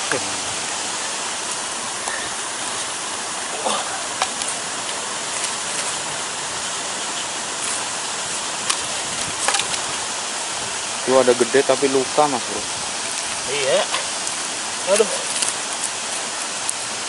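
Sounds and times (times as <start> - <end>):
river water rushing: 0.0 - 17.0
waterfall: 0.0 - 17.0
rustles and clicks: 12.7 - 17.0.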